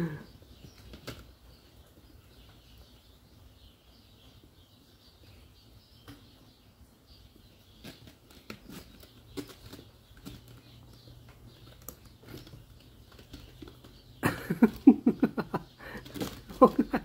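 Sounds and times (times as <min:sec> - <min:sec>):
claws scratching post: 0:07.7 - 0:17.0
kittens scrabbling with claws: 0:07.8 - 0:17.0
person speaking: 0:15.8 - 0:17.0.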